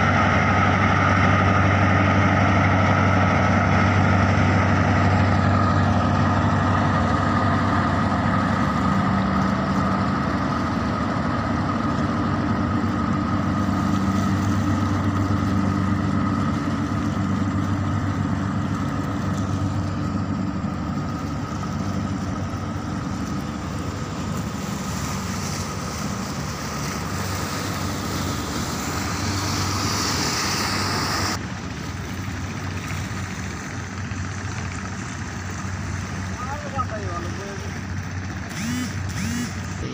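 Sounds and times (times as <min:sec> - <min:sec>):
boat engine droning: 0:00.0 - 0:39.9
high hiss: 0:24.4 - 0:31.4.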